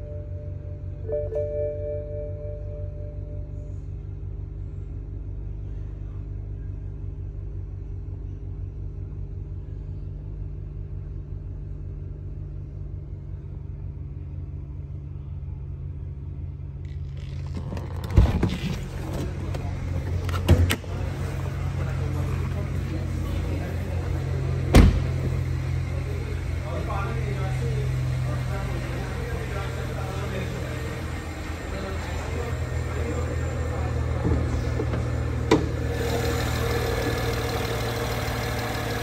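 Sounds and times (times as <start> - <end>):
car engine idling: 0.0 - 39.0
car door opening: 17.1 - 21.0, 24.6 - 25.4.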